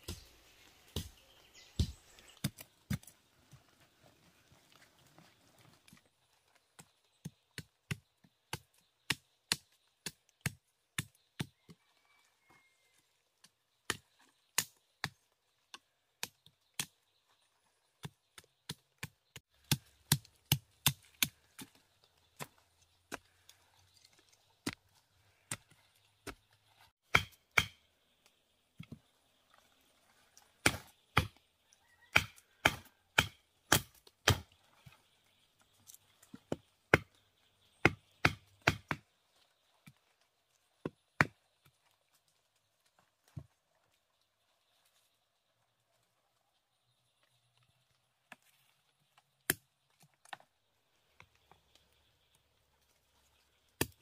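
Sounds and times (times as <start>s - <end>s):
machete chopping soil and wood: 0.0s - 3.1s, 7.5s - 11.5s, 18.0s - 21.8s, 25.4s - 27.9s, 30.6s - 31.4s, 32.1s - 34.6s, 36.4s - 37.2s, 37.8s - 39.0s, 49.4s - 49.7s, 53.8s - 54.0s
stick pounding bamboo stake: 18.0s - 21.8s, 27.0s - 27.8s, 30.6s - 31.4s, 32.1s - 34.5s, 37.8s - 39.0s.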